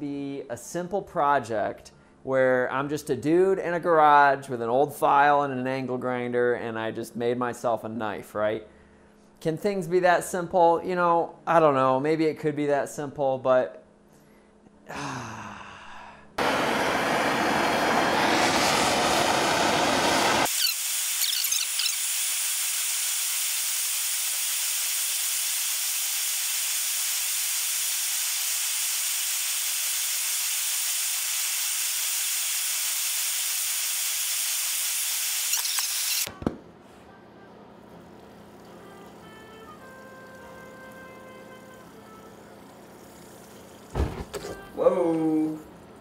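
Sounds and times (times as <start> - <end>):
gas torches hissing: 16.4 - 36.3.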